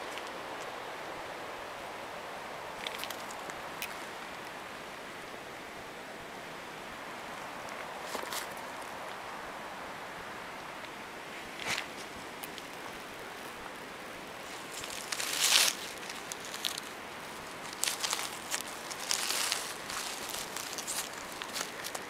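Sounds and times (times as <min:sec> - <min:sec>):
steady outdoor hiss: 0:00.0 - 0:22.0
dry leaves rustling: 0:02.7 - 0:04.2, 0:07.8 - 0:09.0, 0:11.5 - 0:22.0.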